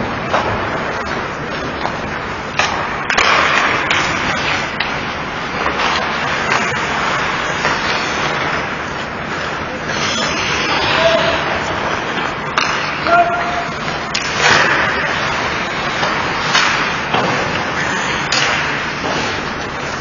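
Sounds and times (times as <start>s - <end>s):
sticks and puck clacking: 0.0s - 20.0s
skates scraping on ice: 0.2s - 20.0s
players calling out: 9.8s - 11.9s.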